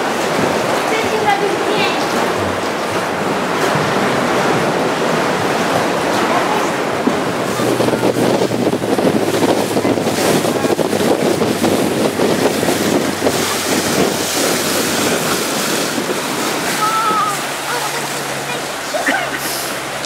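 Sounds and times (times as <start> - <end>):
water splashing against boat hull: 0.0 - 20.0
wind buffeting microphone: 0.0 - 20.0.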